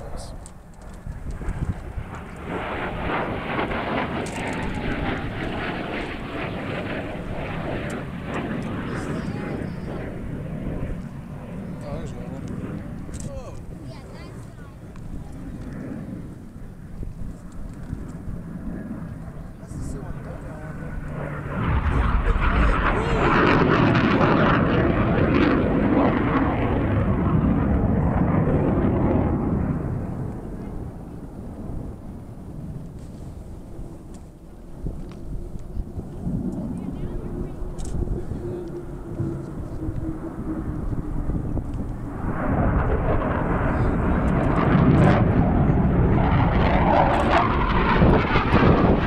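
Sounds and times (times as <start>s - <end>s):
jet flying past: 0.0s - 49.0s.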